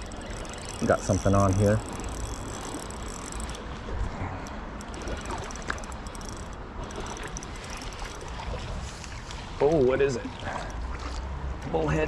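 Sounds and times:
fishing reel clicking: 0.0 - 3.8, 4.4 - 9.2.

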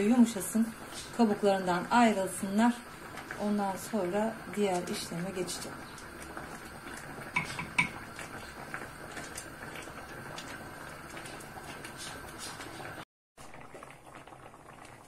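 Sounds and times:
tomatoes simmering hiss: 0.0 - 15.0
wooden spoon knocking pot rim: 7.4 - 8.0.

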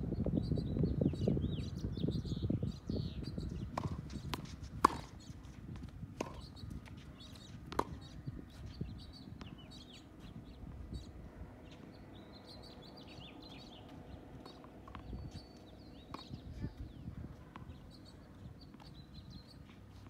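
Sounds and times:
small birds chirping: 0.1 - 20.0
tennis ball bouncing on court: 3.3 - 10.0, 13.4 - 18.1
racket hitting tennis ball: 3.7 - 8.2.

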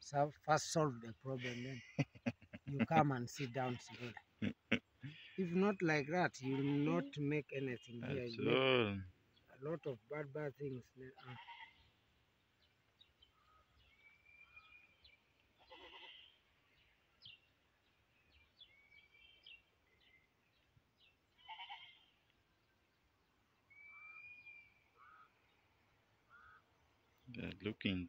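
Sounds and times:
distant livestock bleating: 6.4 - 7.3, 11.2 - 11.8, 15.6 - 16.4, 21.4 - 22.1.

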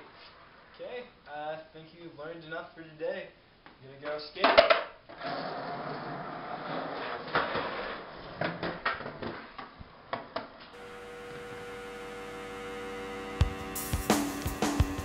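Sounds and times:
skateboard rolling on concrete: 4.5 - 11.8
steady hum with held tone: 10.8 - 15.0.

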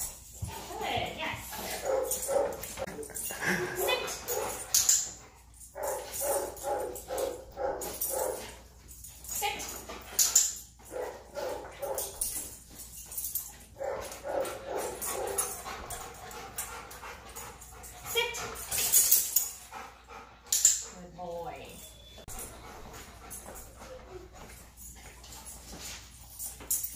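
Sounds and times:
dog whining and yipping: 21.8 - 22.9.

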